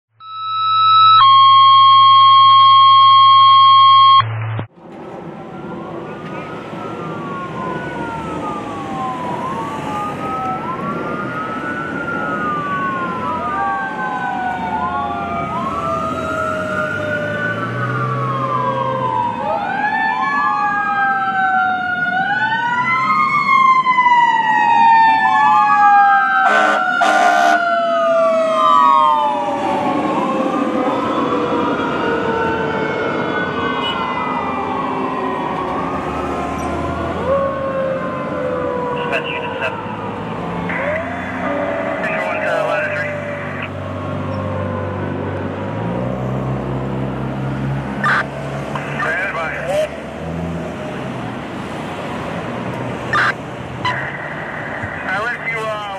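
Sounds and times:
loud steady electronic tone: 0.2 - 4.7
fire engine sirens wailing: 0.2 - 55.9
rapid horn blasts: 26.4 - 27.6.

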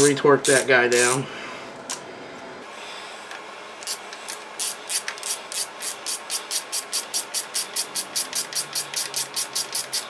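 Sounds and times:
hand ratchet clicking: 3.8 - 10.0.

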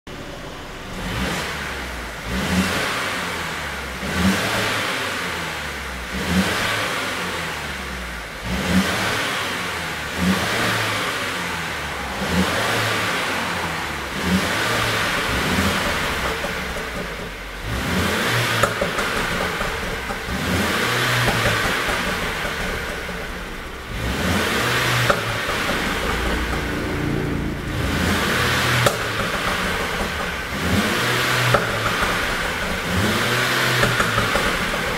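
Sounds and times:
car engine revving: 0.1 - 34.9
exhaust pops: 11.6 - 34.9.

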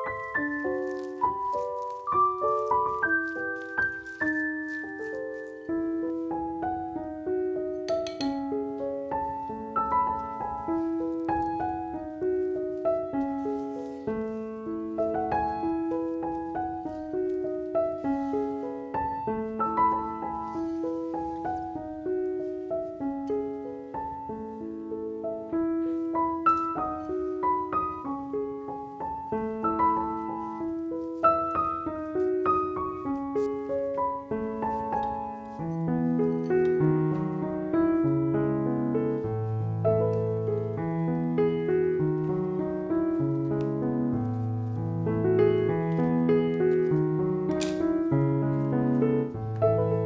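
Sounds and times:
gentle piano melody: 0.0 - 50.0.

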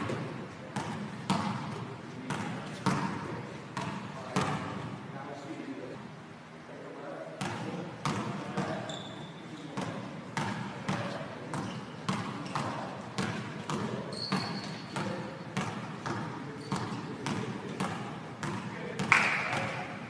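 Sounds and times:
basketball bouncing on gym floor: 0.0 - 4.9, 7.4 - 20.0
short high squeaks: 8.8 - 9.6, 14.1 - 14.9.

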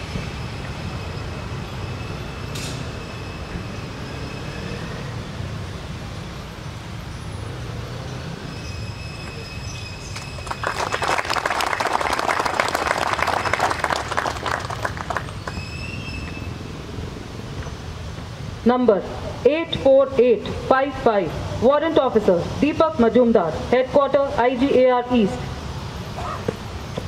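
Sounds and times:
crowd applauding: 10.1 - 15.8.

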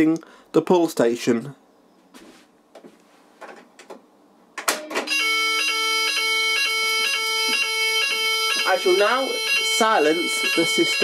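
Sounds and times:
fire alarm pull station clack: 4.6 - 8.9
pulsed fire alarm tone: 4.9 - 11.0.

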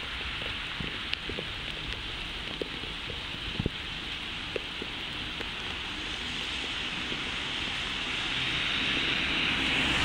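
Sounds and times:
rain hiss: 0.0 - 10.0
diesel locomotive engine: 3.2 - 10.0.

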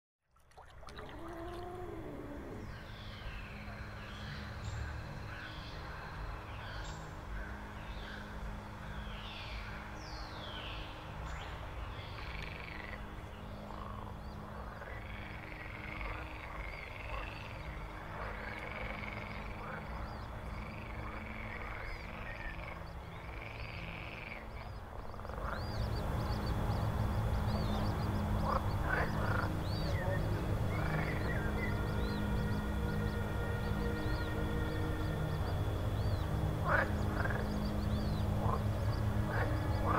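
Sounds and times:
low steady drone: 0.7 - 39.9
swooping animal calls: 0.9 - 3.0, 23.4 - 39.9.

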